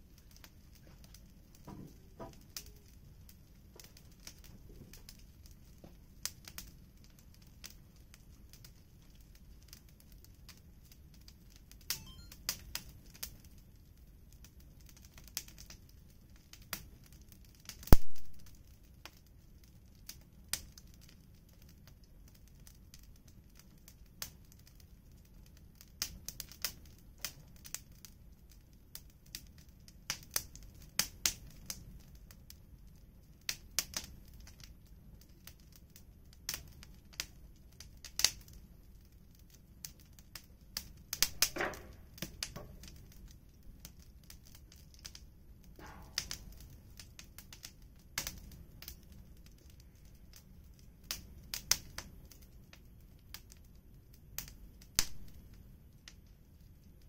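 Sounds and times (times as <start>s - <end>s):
wood fire crackling: 0.0s - 57.0s.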